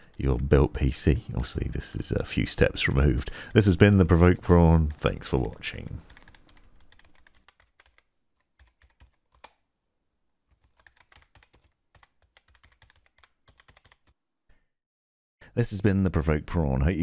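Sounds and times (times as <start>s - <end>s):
computer keyboard typing: 4.9s - 9.6s, 10.5s - 14.2s.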